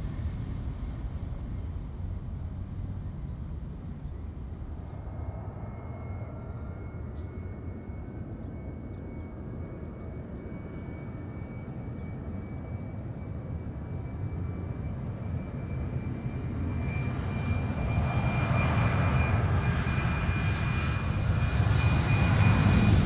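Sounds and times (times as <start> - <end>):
jet engine rumble: 0.0 - 23.0
jet engine whine rising: 0.0 - 23.0.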